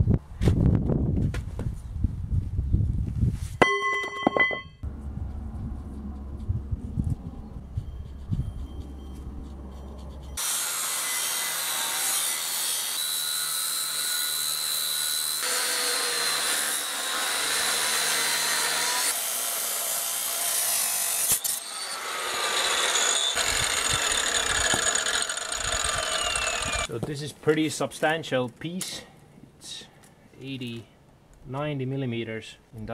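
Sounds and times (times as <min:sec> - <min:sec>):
angle grinder cutting steel: 0:10.3 - 0:26.9.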